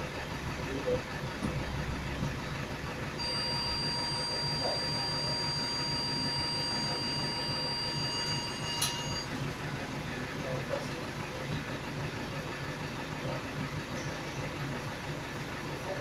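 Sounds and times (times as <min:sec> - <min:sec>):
bus engine idling: 0:00.0 - 0:16.0
high-pitched whine: 0:03.2 - 0:09.4.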